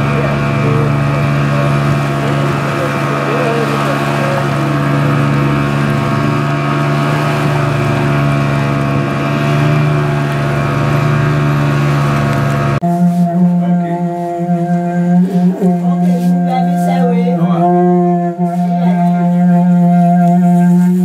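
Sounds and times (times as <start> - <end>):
outboard motor droning: 0.0 - 21.0
voices: 0.0 - 21.0
music: 12.8 - 21.0.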